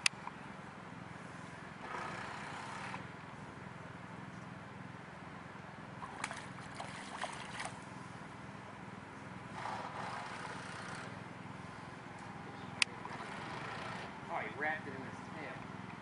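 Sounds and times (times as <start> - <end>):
stream water running: 5.9 - 8.1.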